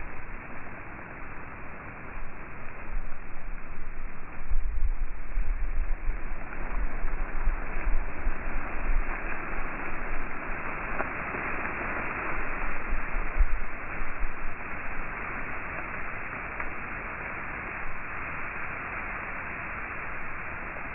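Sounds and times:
strong wind buffeting microphone: 2.2 - 15.6.

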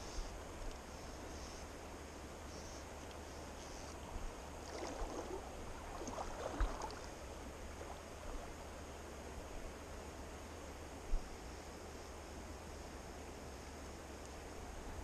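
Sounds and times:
river water running and gurgling: 4.0 - 11.0.

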